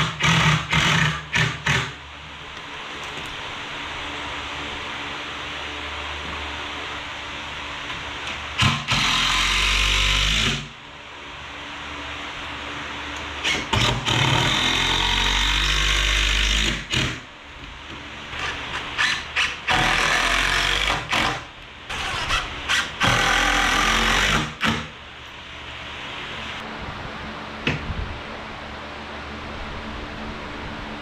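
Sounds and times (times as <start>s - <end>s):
steady low hiss: 23.5s - 31.0s.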